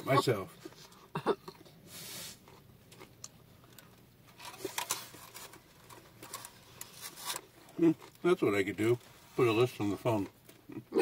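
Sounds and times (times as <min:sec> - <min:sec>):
close-up chewing: 0:02.4 - 0:08.3
paper wrapper crinkling: 0:04.4 - 0:08.3.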